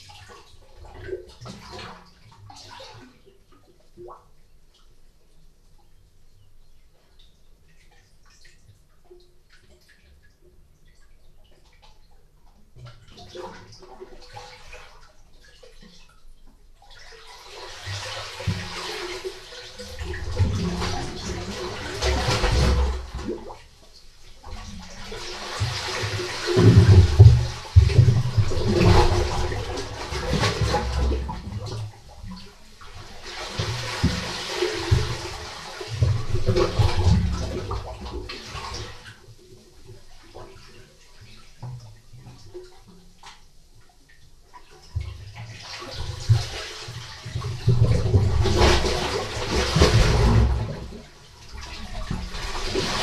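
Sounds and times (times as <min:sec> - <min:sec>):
low water thumps: 0:24.5 - 0:39.1, 0:46.0 - 0:53.0.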